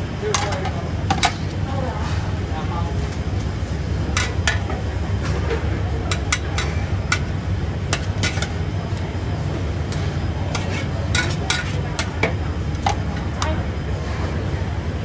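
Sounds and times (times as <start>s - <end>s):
metal ladle clinking on wok: 6.1s - 8.6s, 10.5s - 13.6s.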